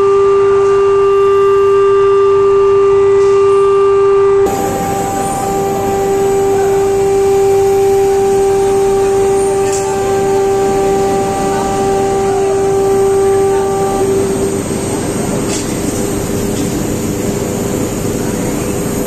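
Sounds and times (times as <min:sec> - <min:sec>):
furnace humming: 0:00.0 - 0:19.0
loud rushing noise: 0:04.5 - 0:18.0.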